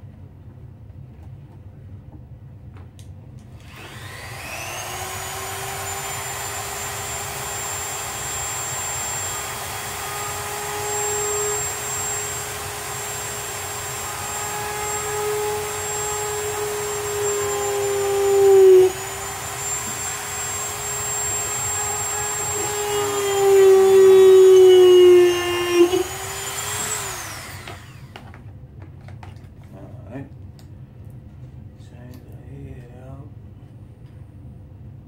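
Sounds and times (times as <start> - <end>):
electric motor whining: 3.6 - 28.2.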